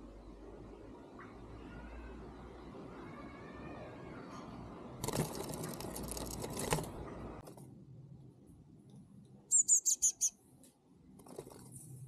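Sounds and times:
bird high thin chirps: 9.5s - 10.4s.

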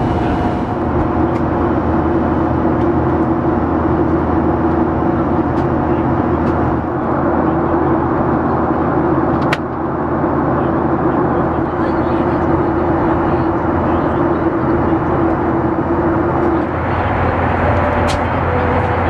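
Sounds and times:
steady low hum: 0.0s - 9.0s, 9.9s - 19.0s
jet engine and airflow rush: 0.0s - 19.0s.

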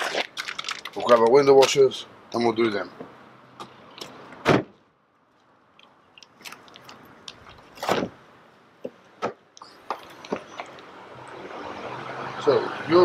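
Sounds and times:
crunchy rustle: 0.0s - 1.8s, 5.2s - 8.2s
car door shutting: 4.4s - 4.8s.

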